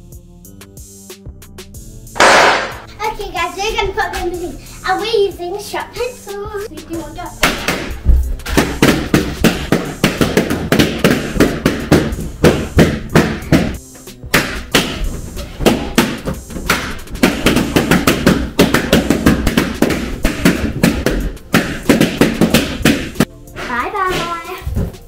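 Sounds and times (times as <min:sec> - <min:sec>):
background music: 0:00.0 - 0:25.0
balloons popping: 0:02.2 - 0:02.9, 0:07.4 - 0:25.0.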